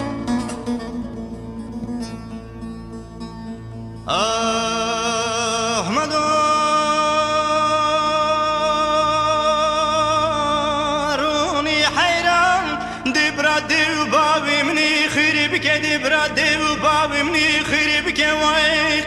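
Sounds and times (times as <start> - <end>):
man singing with vibrato: 4.0 - 19.0.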